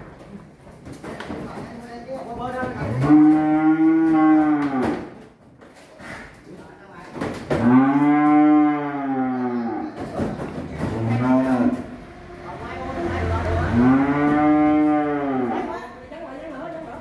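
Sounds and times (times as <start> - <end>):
cattle mooing: 2.8 - 5.0, 7.6 - 9.9, 13.1 - 15.8.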